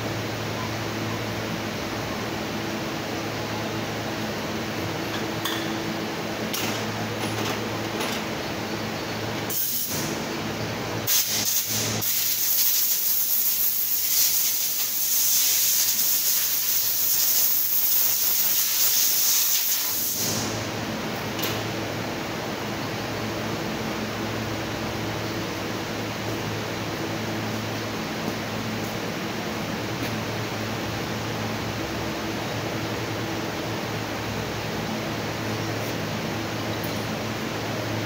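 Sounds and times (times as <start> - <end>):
low shop hum: 0.0 - 38.0
air blow gun hissing: 11.1 - 20.6.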